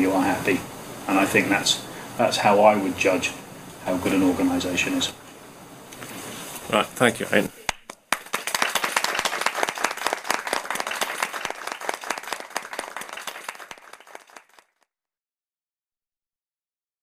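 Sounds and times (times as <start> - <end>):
group of people applauding: 7.7 - 14.9.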